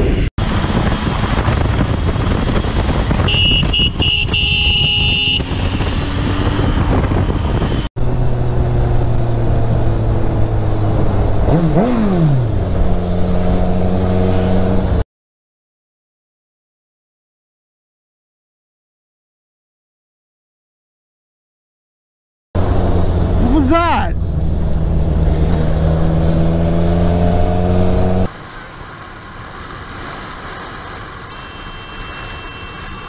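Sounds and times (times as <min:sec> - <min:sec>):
wind noise on microphone: 0:00.0 - 0:15.0.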